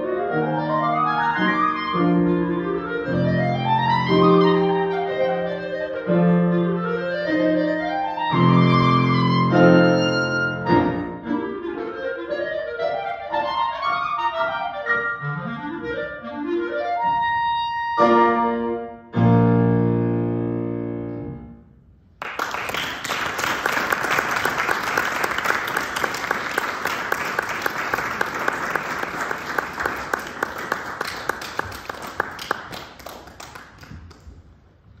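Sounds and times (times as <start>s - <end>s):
clarinet and piano chord: 0.0s - 21.6s
audience applause: 22.2s - 34.4s.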